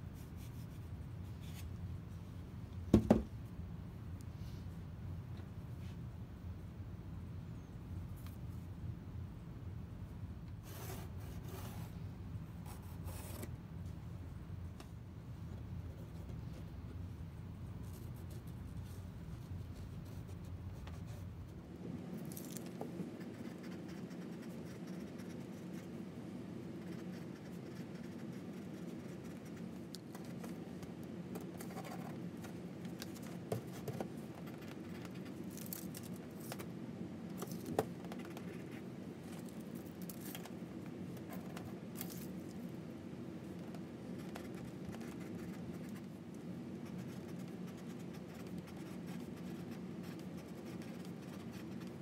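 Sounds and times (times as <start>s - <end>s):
steady low hum: 0.0s - 52.0s
pencil scratching on paper: 23.2s - 25.9s, 46.8s - 52.0s.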